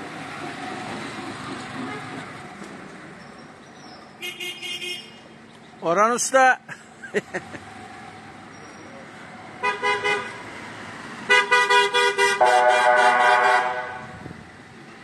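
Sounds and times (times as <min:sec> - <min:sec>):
vehicle horns honking: 0:04.2 - 0:05.2, 0:09.6 - 0:10.4, 0:11.3 - 0:14.2.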